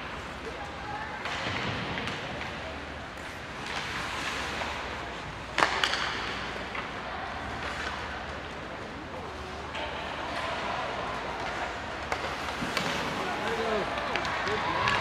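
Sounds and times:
sharp crack of puck: 5.6 - 6.5.

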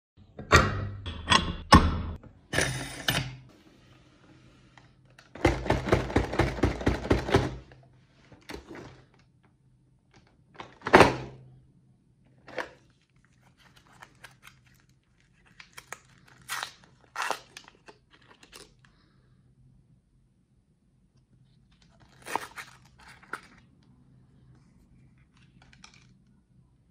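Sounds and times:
candy wrappers rustling: 12.7 - 19.0, 21.6 - 23.9.

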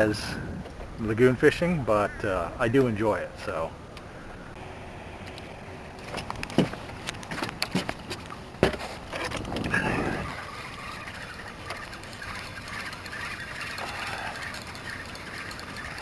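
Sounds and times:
footsteps on boat deck: 6.0 - 9.8.

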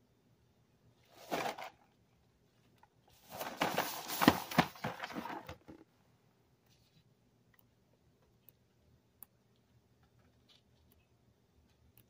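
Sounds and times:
cardboard box rustling and scraping: 3.2 - 5.5.

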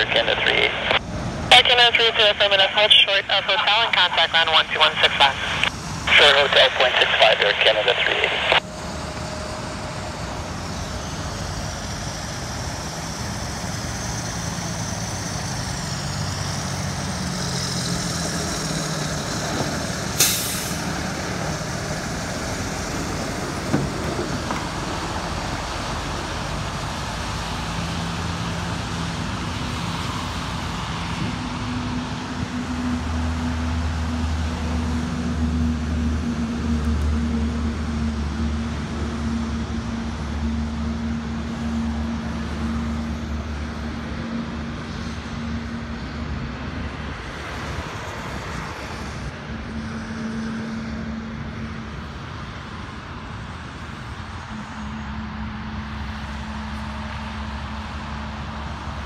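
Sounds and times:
jet engines rumbling and whining: 0.0 - 59.0.

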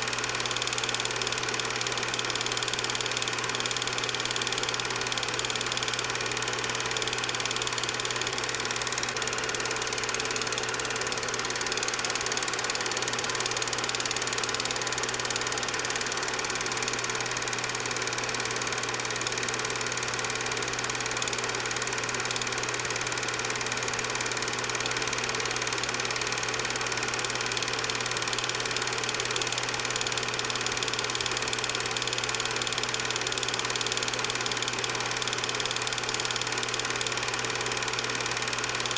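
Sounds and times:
film projector running: 0.0 - 38.9.

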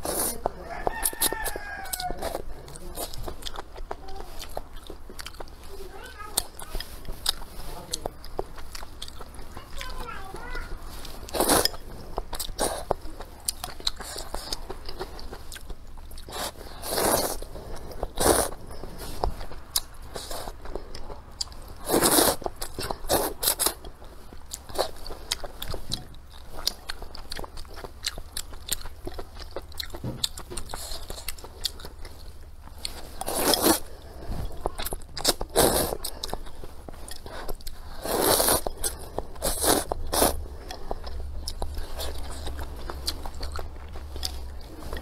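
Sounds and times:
person slurping noodles: 0.0 - 0.4, 11.1 - 13.0, 16.2 - 19.2, 21.8 - 23.8, 33.1 - 34.6, 35.2 - 36.4, 37.2 - 41.2
wet chewing: 0.0 - 45.0.

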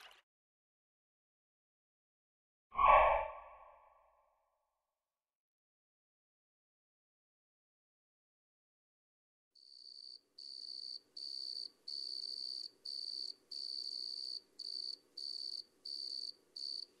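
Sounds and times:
cricket chirping: 9.6 - 17.0.

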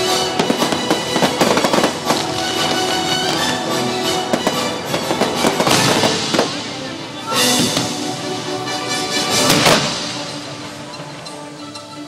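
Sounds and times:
fireworks bangs and crackles: 0.0 - 8.2, 9.2 - 10.4
show music: 0.0 - 12.0.

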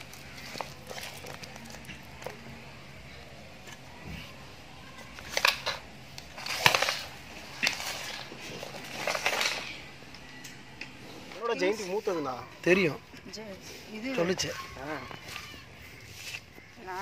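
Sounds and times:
hand mixing wet chicken: 0.0 - 2.4.

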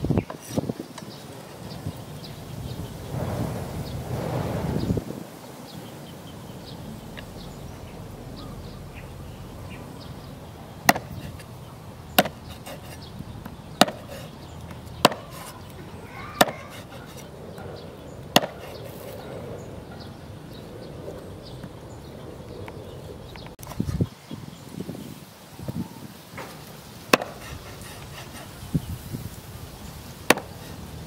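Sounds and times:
cleaver chopping on wooden board: 10.9 - 11.5, 12.2 - 14.3, 15.0 - 15.6, 16.4 - 17.3, 18.4 - 18.8, 27.1 - 28.4, 30.3 - 30.7.

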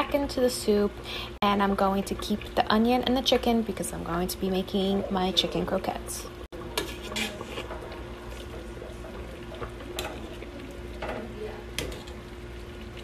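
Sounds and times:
liquid sloshing in a pot: 6.5 - 13.0.

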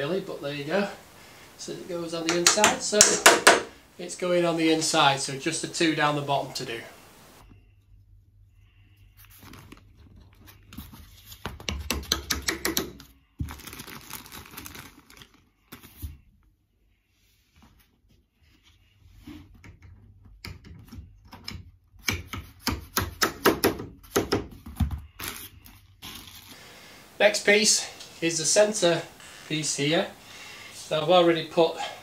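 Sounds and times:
screwdriver clicking and knocking: 2.3 - 3.7
rustling and scraping: 8.8 - 11.6.

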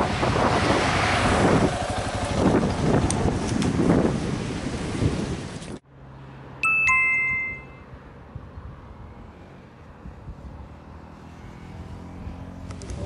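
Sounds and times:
two-note descending chime: 6.6 - 7.8.

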